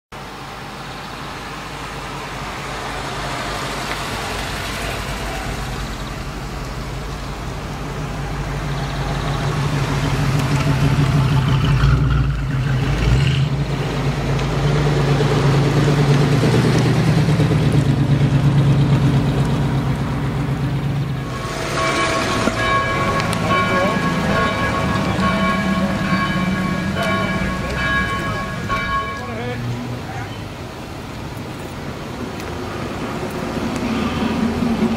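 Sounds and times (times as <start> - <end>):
car engine driving past: 2.4 - 28.8.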